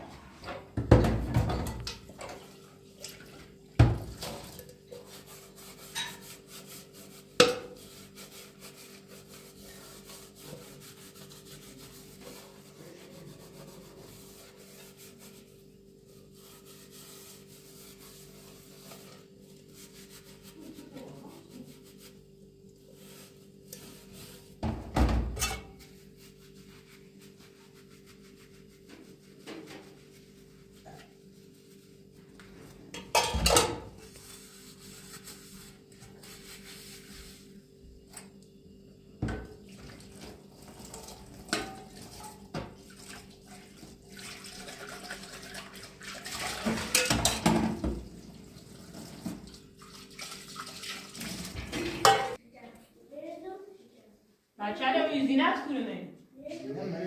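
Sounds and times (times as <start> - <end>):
pots clanking against metal sink: 0.4 - 3.2, 5.9 - 6.3, 7.4 - 7.8, 24.6 - 25.8, 32.9 - 34.0, 40.7 - 42.9, 46.2 - 48.1, 51.2 - 52.4
metal pot being scrubbed: 1.3 - 22.2, 22.8 - 24.6, 25.3 - 32.0, 32.9 - 37.6, 40.2 - 52.4.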